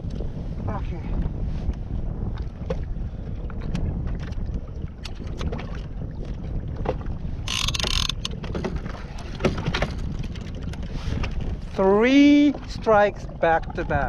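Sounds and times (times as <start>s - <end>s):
water moving around a kayak: 0.0s - 14.0s
wind buffeting microphone: 0.0s - 14.0s
small knocks and clicks: 6.9s - 8.8s.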